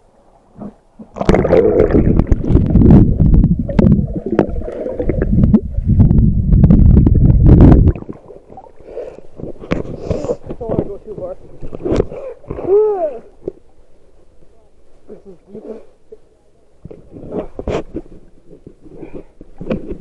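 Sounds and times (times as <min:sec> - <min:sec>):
underwater water churning: 0:00.6 - 0:10.5.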